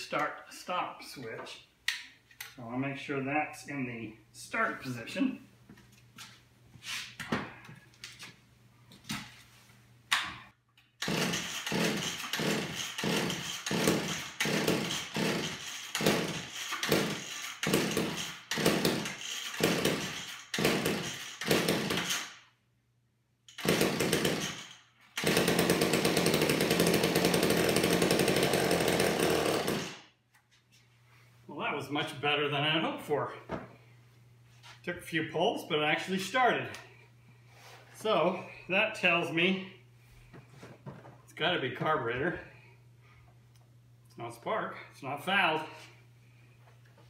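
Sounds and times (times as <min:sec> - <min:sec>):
chainsaw engine running: 0:11.0 - 0:22.1, 0:23.6 - 0:24.6, 0:25.2 - 0:30.0
chainsaw pull-start knocks: 0:11.0 - 0:22.2.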